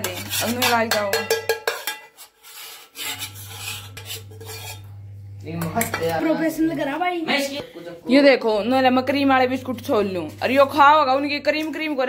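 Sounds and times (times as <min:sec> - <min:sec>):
steel bowls scraping and clinking: 0:00.0 - 0:06.8.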